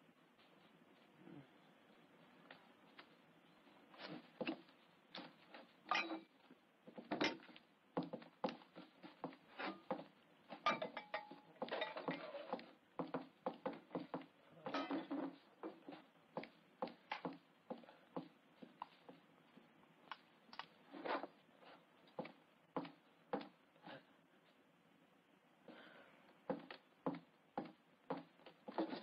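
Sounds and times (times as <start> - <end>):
crockery and cutlery clinking: 5.9 - 6.3, 10.6 - 12.5, 14.6 - 15.3.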